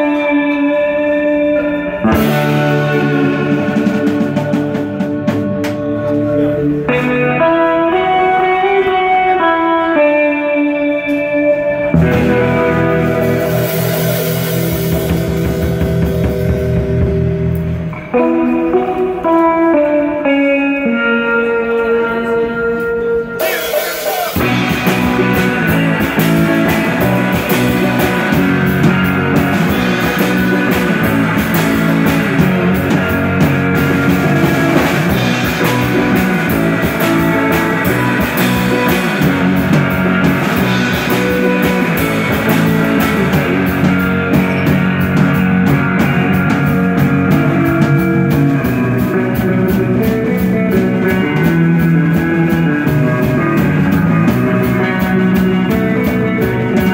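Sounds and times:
drum kit: 0:00.0 - 0:09.5, 0:11.1 - 0:20.3, 0:22.8 - 0:56.9
bass guitar: 0:00.0 - 0:56.9
electric guitar: 0:00.0 - 0:56.9.

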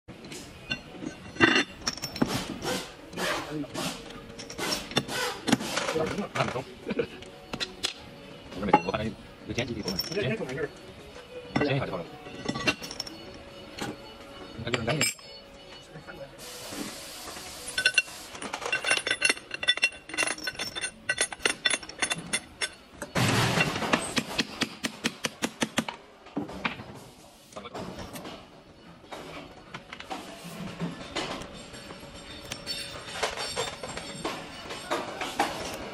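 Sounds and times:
steel parts clinking and scraping: 0:00.2 - 0:10.7, 0:11.5 - 0:15.8, 0:17.3 - 0:24.9, 0:29.1 - 0:35.9
steel pins clinking: 0:17.7 - 0:24.6, 0:31.1 - 0:35.9.

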